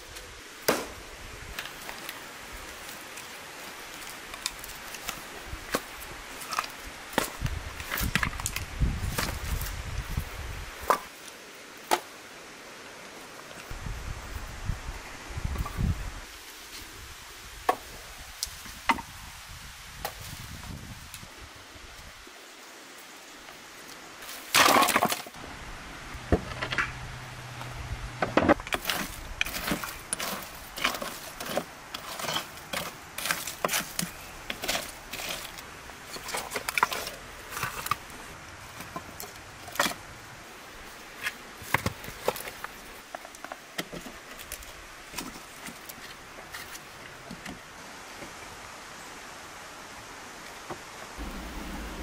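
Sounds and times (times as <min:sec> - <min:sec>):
firewood logs knocking together: 0:04.3 - 0:09.6, 0:24.5 - 0:25.4, 0:28.2 - 0:38.1.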